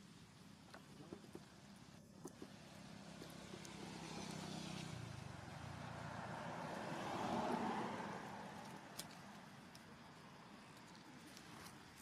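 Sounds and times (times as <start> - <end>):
vehicle passing: 2.6 - 10.6.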